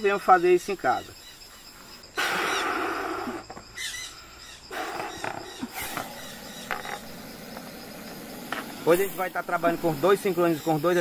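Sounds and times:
snake hissing: 1.4 - 11.0.

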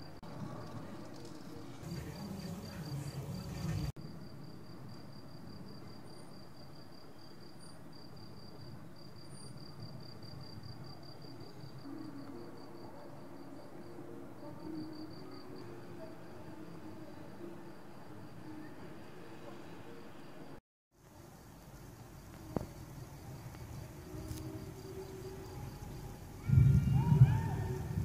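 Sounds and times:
cricket chirping: 0.0 - 28.0
distant thunder rumble: 25.8 - 28.0.

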